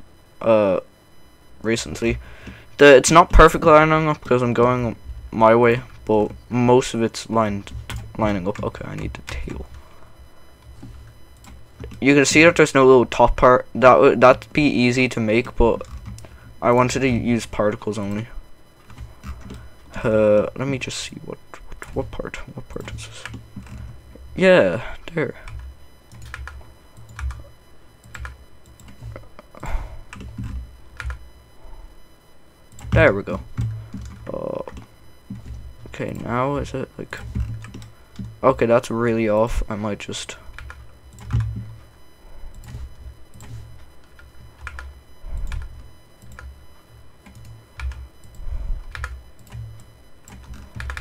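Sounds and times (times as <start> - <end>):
keyboard keys tapping: 25.5 - 31.2, 32.7 - 36.2, 37.1 - 38.4, 40.5 - 41.8, 42.5 - 46.5, 47.2 - 51.0
keyboard keys clicking: 26.1 - 27.4, 42.5 - 46.5, 50.2 - 51.0.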